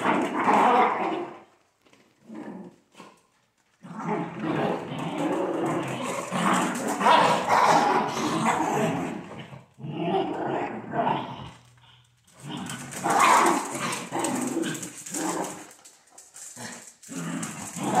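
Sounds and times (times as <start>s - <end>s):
dogs growling: 2.2s - 3.2s, 3.8s - 18.0s.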